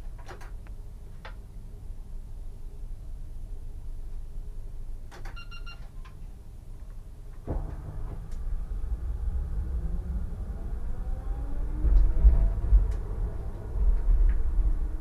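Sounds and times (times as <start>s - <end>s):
short electronic beep: 5.4s - 5.8s
tram running rumble: 6.8s - 15.0s
rising motor whine: 7.5s - 15.0s.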